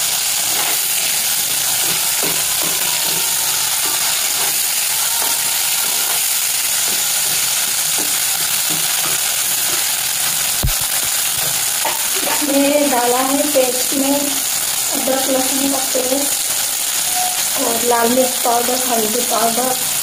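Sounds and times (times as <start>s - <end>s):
onions and tomatoes sizzling: 0.0s - 20.0s
spatula scraping and stirring: 0.3s - 10.3s.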